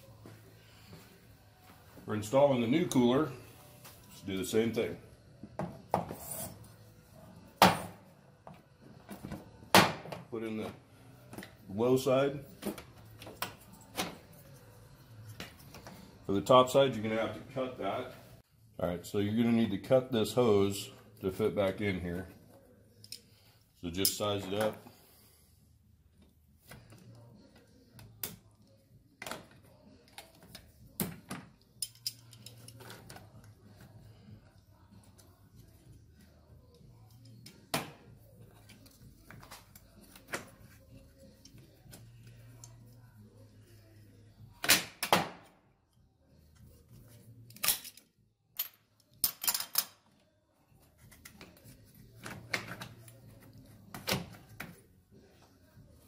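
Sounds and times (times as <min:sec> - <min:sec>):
hand tools clinking on metal: 0:31.8 - 0:32.9.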